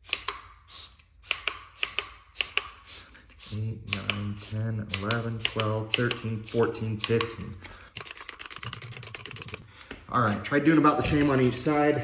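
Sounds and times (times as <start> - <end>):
spray bottle spritzing: 0.0 - 9.6
man counting: 3.4 - 7.7, 10.0 - 12.0.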